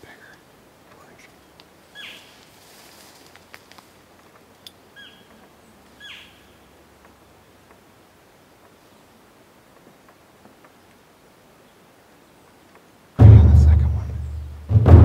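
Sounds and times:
faint clicks: 0:00.0 - 0:01.8, 0:03.2 - 0:06.0, 0:07.0 - 0:07.9, 0:08.6 - 0:08.8, 0:09.7 - 0:11.0, 0:12.4 - 0:12.9.

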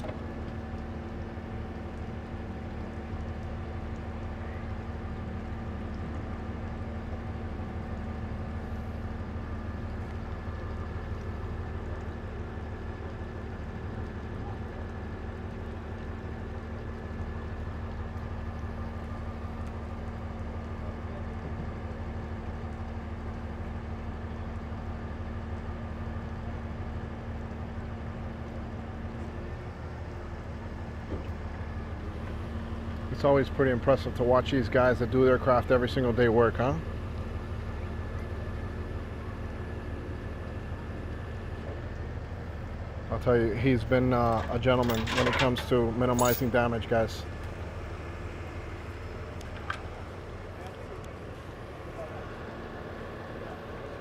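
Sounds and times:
constant hum: 0:00.0 - 0:54.0
diesel engine idling: 0:00.0 - 0:54.0.

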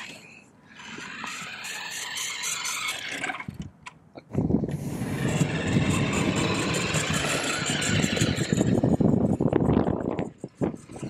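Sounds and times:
toy truck electric motor and gears: 0:00.7 - 0:03.7, 0:04.7 - 0:11.0
tyres rubbing pavement: 0:04.8 - 0:09.5.

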